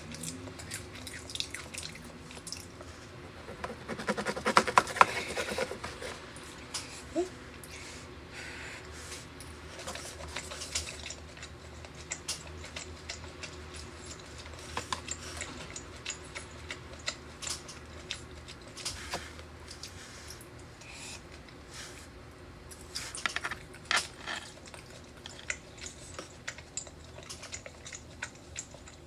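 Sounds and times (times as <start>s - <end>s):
wet chewing clicks and smacks: 0.0s - 2.9s, 9.8s - 21.6s, 22.7s - 29.0s.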